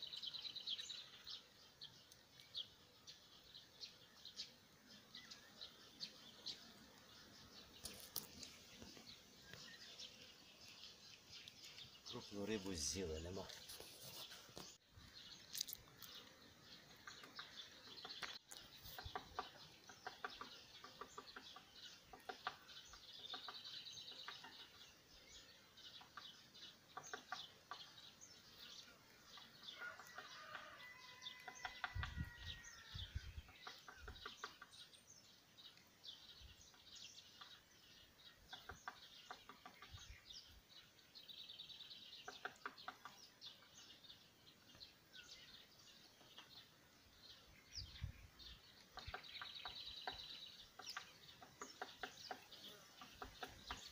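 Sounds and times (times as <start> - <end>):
birds chirping and trilling: 0.0 - 53.9.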